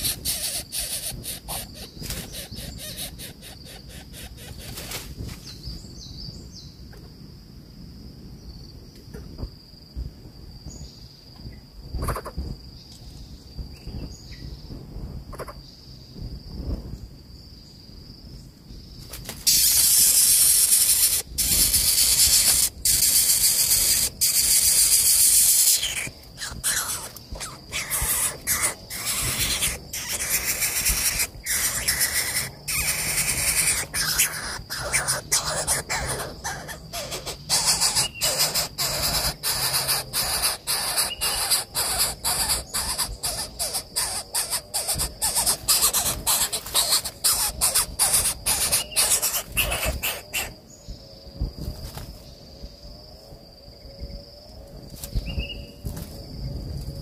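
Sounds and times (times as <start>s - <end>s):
bird chick hissing begging calls: 0.0s - 4.9s, 19.5s - 50.6s
high insect trill: 0.0s - 57.0s.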